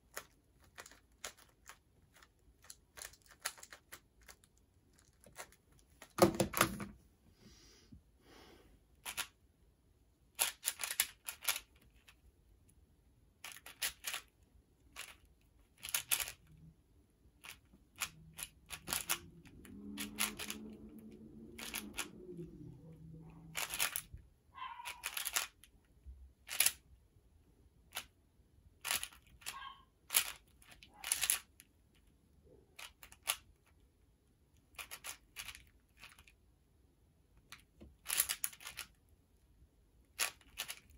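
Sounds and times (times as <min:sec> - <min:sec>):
plastic puzzle clacking: 0:00.0 - 0:06.9, 0:09.0 - 0:09.4, 0:10.3 - 0:12.2, 0:13.4 - 0:16.6, 0:17.4 - 0:25.8, 0:26.4 - 0:26.8, 0:28.8 - 0:32.1, 0:32.8 - 0:33.8, 0:34.6 - 0:36.4, 0:37.4 - 0:39.0, 0:40.0 - 0:40.9.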